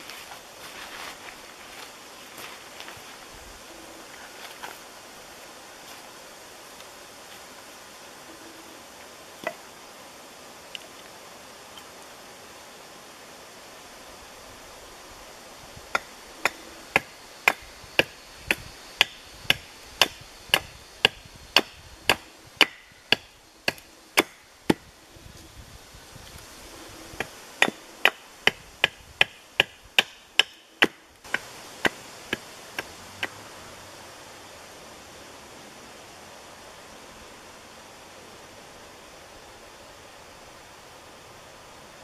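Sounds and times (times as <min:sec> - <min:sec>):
hatchet chopping wood: 0:15.9 - 0:24.9, 0:27.2 - 0:33.4.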